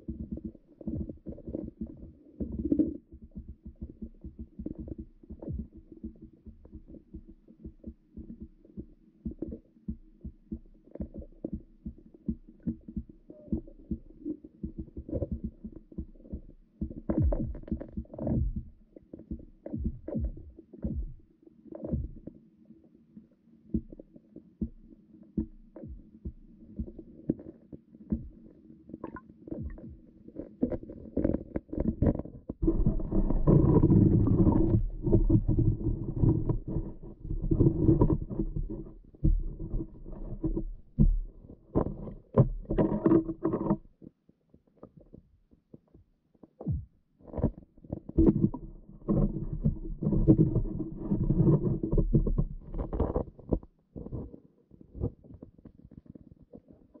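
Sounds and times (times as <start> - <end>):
muffled underwater knocks: 0.1 - 22.3, 29.0 - 43.9, 46.6 - 54.3.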